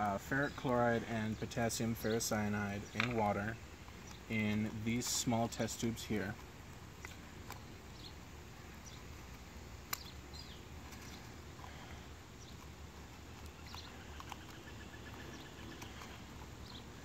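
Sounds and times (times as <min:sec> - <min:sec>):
bird chirps: 0:13.4 - 0:17.0
rapid bird trill: 0:13.4 - 0:17.0.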